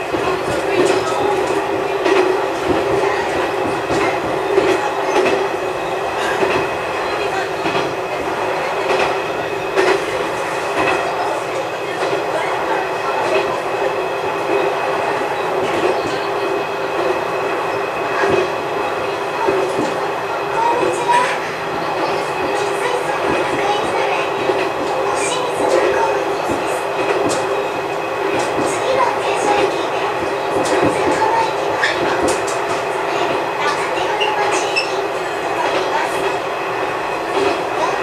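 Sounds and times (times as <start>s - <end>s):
railcar engine hum: 0.0s - 38.0s.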